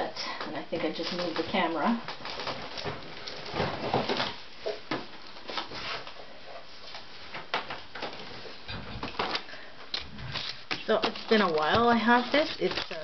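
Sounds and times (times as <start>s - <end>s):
rustling of craft supplies: 0.4s - 13.0s.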